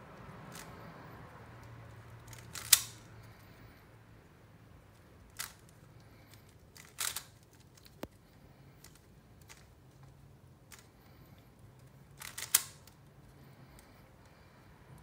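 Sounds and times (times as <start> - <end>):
puzzle cube layers clicking: 2.3 - 3.0, 12.2 - 13.0.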